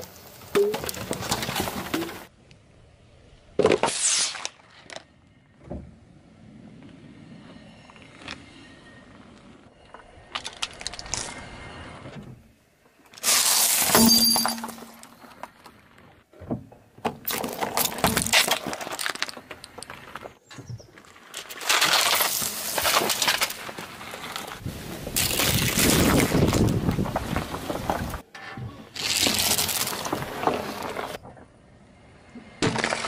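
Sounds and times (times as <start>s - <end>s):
car tyre crushing plastic: 17.0s - 20.3s, 21.2s - 28.2s, 29.0s - 31.2s, 32.6s - 33.0s.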